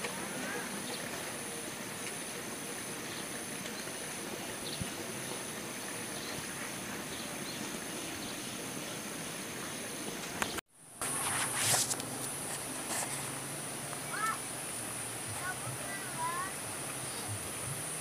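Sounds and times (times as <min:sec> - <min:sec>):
insects calling: 0:00.0 - 0:18.0
low background hiss: 0:11.9 - 0:18.0.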